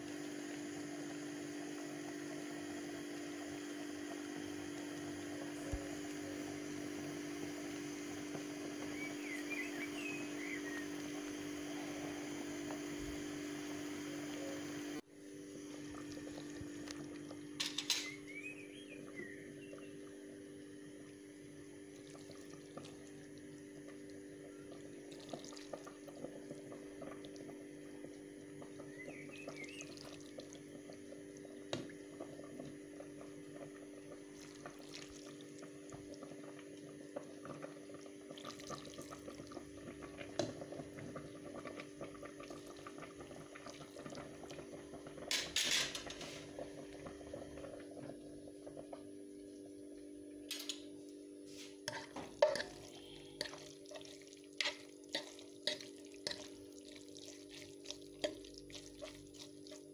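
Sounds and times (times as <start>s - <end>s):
pasta simmering with fine crackle: 0.0s - 17.6s, 18.7s - 59.9s
steady low hum: 0.0s - 59.9s
sauce ladled over pasta: 51.5s - 59.9s.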